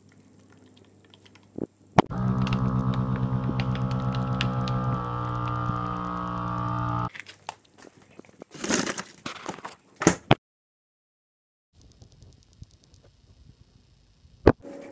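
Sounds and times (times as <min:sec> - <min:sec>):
vacuum sealer pump humming: 0:02.1 - 0:07.1.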